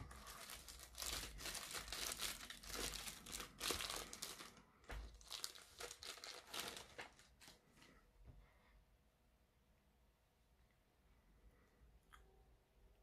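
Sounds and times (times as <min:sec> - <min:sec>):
plastic wrap crinkling: 0:00.0 - 0:08.0.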